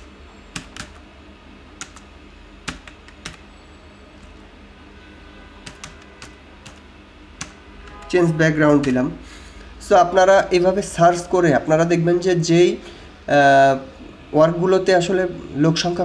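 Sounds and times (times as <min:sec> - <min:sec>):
computer keyboard typing: 0:00.0 - 0:01.0, 0:01.8 - 0:03.5, 0:05.6 - 0:06.8, 0:07.4 - 0:08.1
faint steady low hum: 0:00.0 - 0:16.0.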